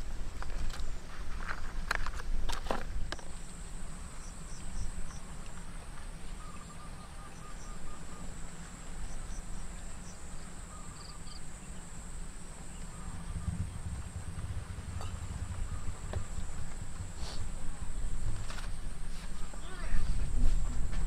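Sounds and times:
high insect drone: 0:00.0 - 0:21.0
bird chirps: 0:06.2 - 0:11.9, 0:12.7 - 0:16.7
bird trill: 0:06.4 - 0:08.4
low rumble: 0:12.7 - 0:19.1.

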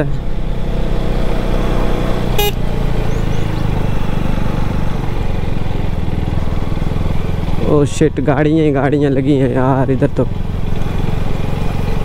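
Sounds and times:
motorcycle engine running: 0:00.3 - 0:12.0
short horn beep: 0:02.4 - 0:02.6.

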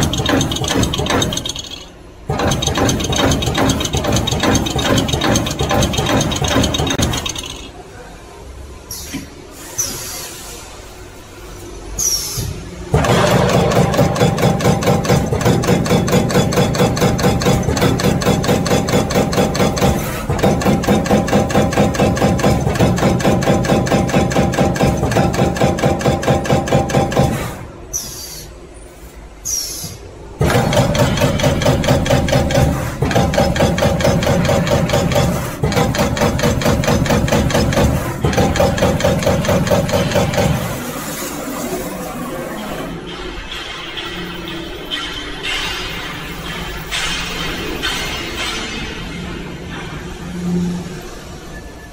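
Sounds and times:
punch press punching sheet metal: 0:00.0 - 0:07.7, 0:12.9 - 0:27.7, 0:30.4 - 0:41.6.

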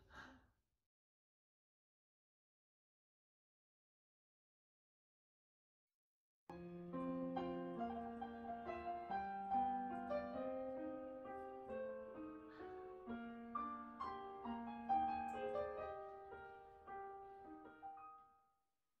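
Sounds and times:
piano melody: 0:06.5 - 0:18.4.

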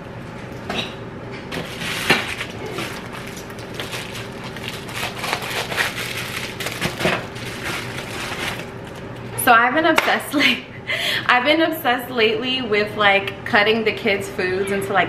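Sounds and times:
packaging crinkling and tearing: 0:01.5 - 0:09.3.

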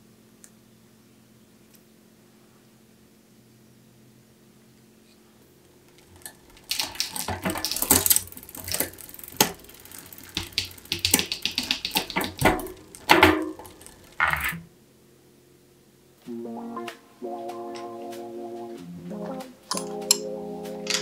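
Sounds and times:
bicycle chain clicking: 0:05.8 - 0:14.6.

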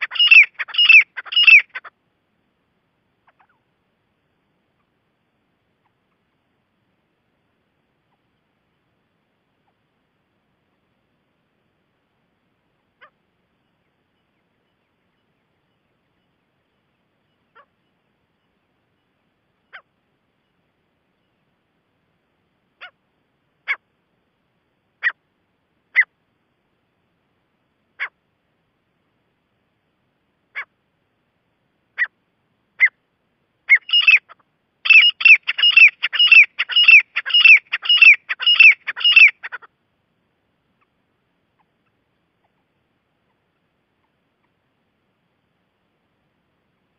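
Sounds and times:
francolin calling: 0:00.0 - 0:02.0, 0:03.1 - 0:03.8, 0:12.8 - 0:21.5, 0:23.6 - 0:24.0, 0:25.0 - 0:25.2, 0:25.9 - 0:26.2, 0:31.9 - 0:39.8.

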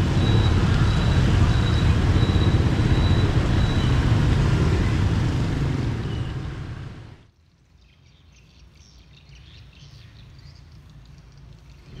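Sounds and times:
tyres hissing on wet road: 0:00.0 - 0:07.2
motorbike and car engines rumbling: 0:00.0 - 0:07.3, 0:11.8 - 0:12.0.

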